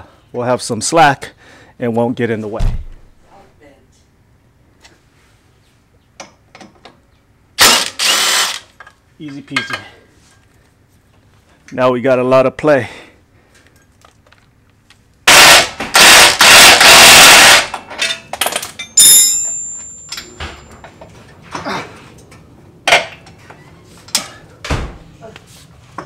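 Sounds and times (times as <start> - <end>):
impact wrench hammering: 15.3 - 20.3
metal part clinking: 17.9 - 21.0.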